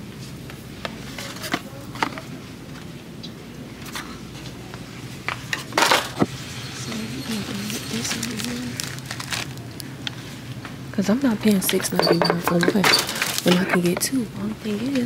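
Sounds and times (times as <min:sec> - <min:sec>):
low in-store hum: 0:00.0 - 0:15.0
products clicking and rustling: 0:07.6 - 0:10.2, 0:11.5 - 0:14.1.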